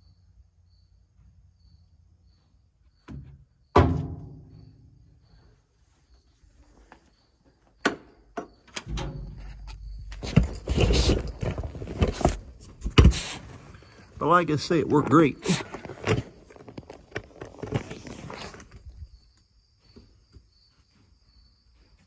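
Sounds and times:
metallic clank ringing: 0:08.8 - 0:11.3
creeper rolling over concrete: 0:08.9 - 0:19.0.

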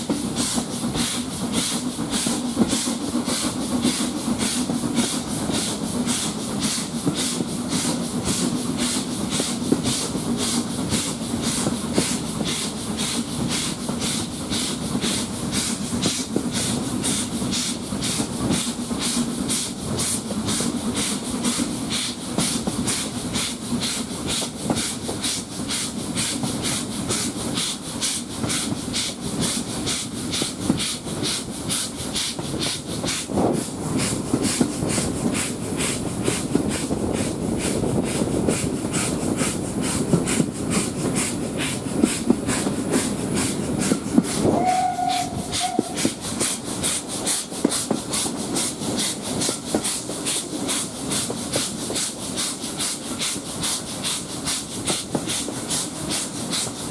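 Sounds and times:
steam locomotive exhaust beats: 0:00.0 - 0:56.9
steam whistle: 0:44.4 - 0:46.2.

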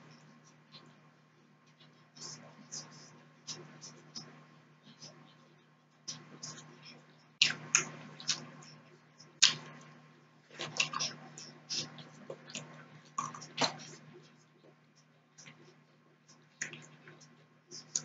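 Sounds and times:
steady low hum: 0:00.0 - 0:18.0
wet chewing mouth sounds: 0:07.4 - 0:08.8, 0:09.4 - 0:09.9, 0:10.5 - 0:14.2.

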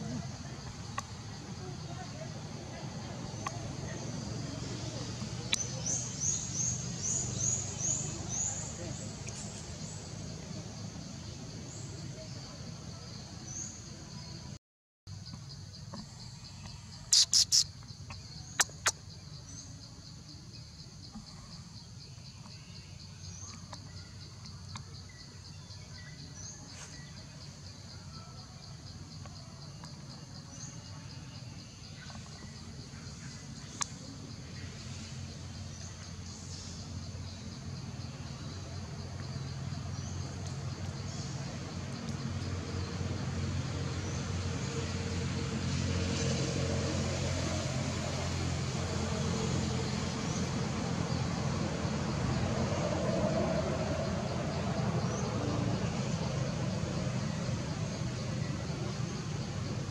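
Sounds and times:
vehicle engine drone: 0:00.0 - 0:13.6, 0:31.6 - 0:59.9
insects trilling: 0:15.1 - 0:59.9
bird chirp: 0:15.2 - 0:43.0.

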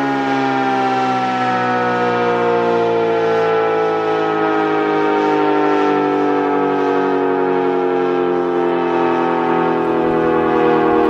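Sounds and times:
warning siren sliding down in pitch: 0:00.0 - 0:11.0.

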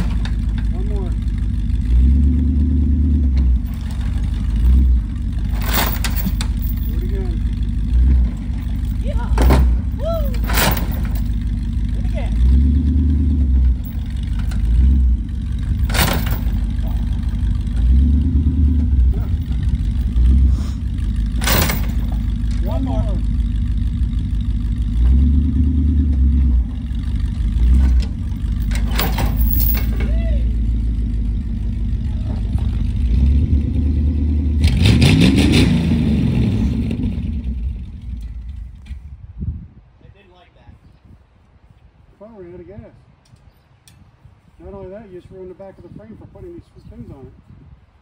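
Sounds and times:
sharp clatter: 0:00.0 - 0:01.9, 0:03.4 - 0:12.0, 0:13.6 - 0:33.2
truck engine revving: 0:00.0 - 0:38.8.

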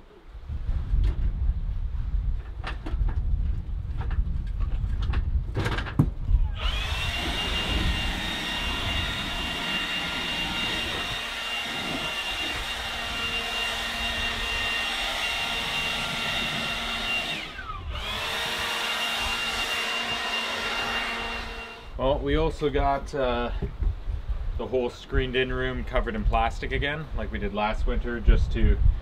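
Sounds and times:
leaf blower whining: 0:06.4 - 0:22.0.

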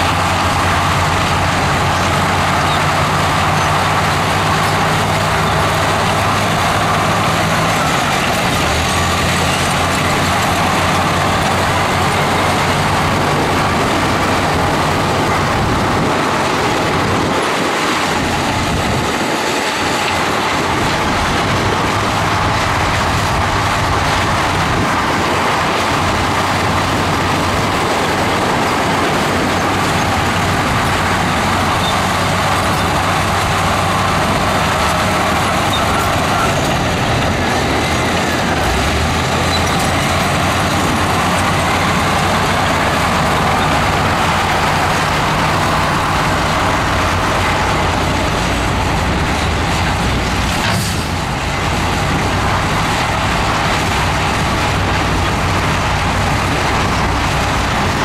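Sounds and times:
heavy diesel engine running: 0:00.0 - 0:58.0
hissing mechanical din: 0:03.4 - 0:58.0.

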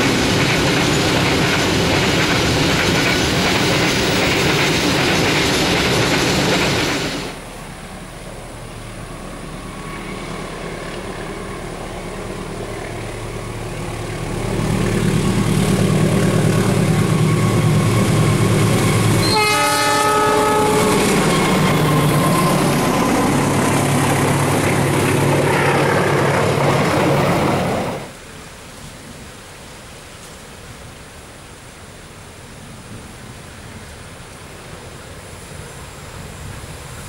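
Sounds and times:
diesel locomotive engine: 0:00.0 - 0:37.0
train rail noise: 0:00.0 - 0:37.0
locomotive horn: 0:16.3 - 0:23.4.

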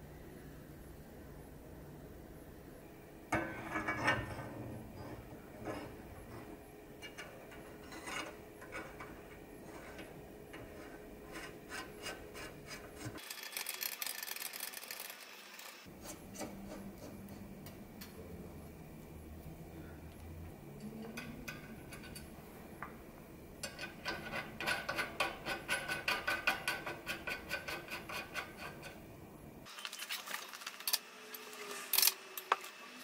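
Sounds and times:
metal rubbing and scraping: 0:03.3 - 0:15.1, 0:23.6 - 0:29.0.

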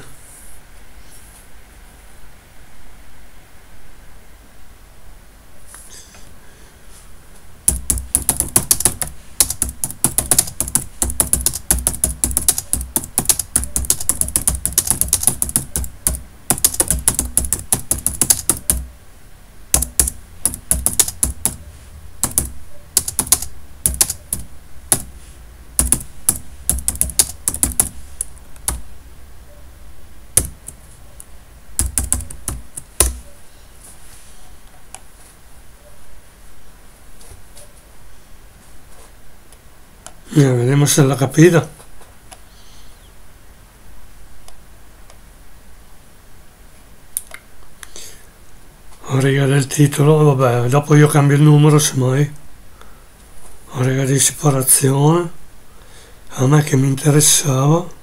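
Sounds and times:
typing on computer keyboard: 0:07.7 - 0:18.9, 0:19.7 - 0:25.2, 0:25.8 - 0:28.9, 0:30.4 - 0:30.8, 0:31.8 - 0:33.2.

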